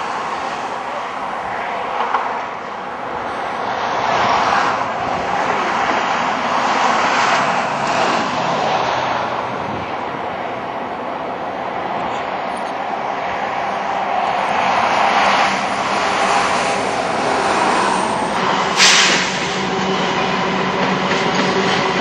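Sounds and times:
diesel locomotive engines running: 0:04.7 - 0:22.0.

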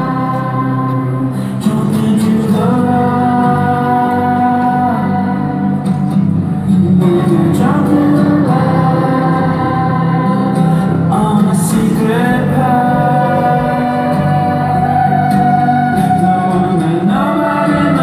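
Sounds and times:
choir singing long held notes: 0:07.6 - 0:11.2, 0:12.0 - 0:18.0.

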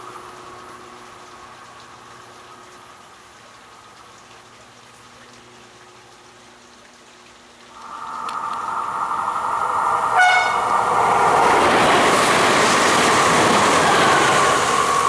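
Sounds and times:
distant train: 0:07.7 - 0:15.0
insects chirping: 0:07.7 - 0:15.0.

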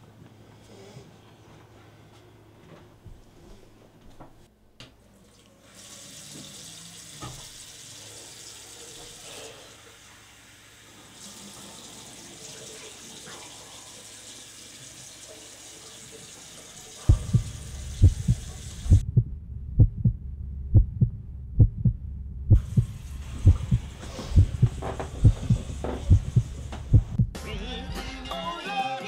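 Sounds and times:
water running into basin: 0:05.2 - 0:19.0, 0:22.6 - 0:27.0.

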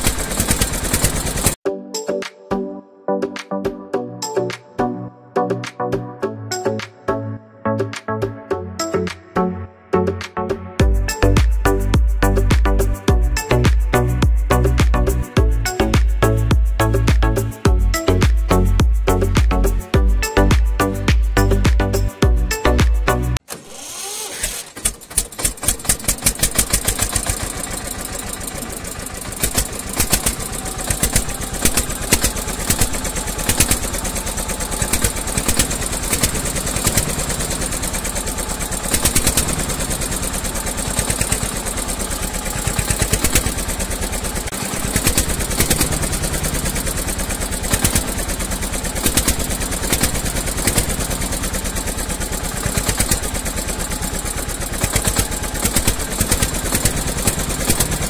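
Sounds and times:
diesel tractor engine chugging: 0:00.0 - 0:01.6, 0:10.8 - 0:58.0
engine knocks: 0:00.0 - 0:01.6, 0:24.4 - 0:58.0.

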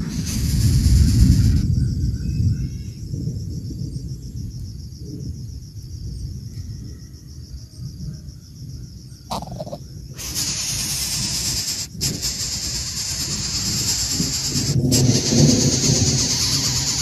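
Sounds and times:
loud steady hiss: 0:00.0 - 0:01.8, 0:09.3 - 0:17.0
insects chirping: 0:00.0 - 0:17.0.

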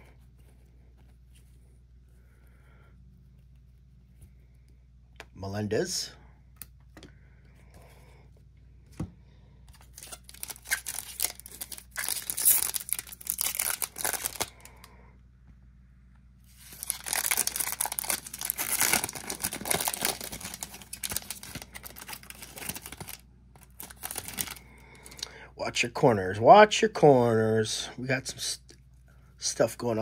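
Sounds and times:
foil wrapper crinkling: 0:09.8 - 0:14.7, 0:16.5 - 0:25.2.

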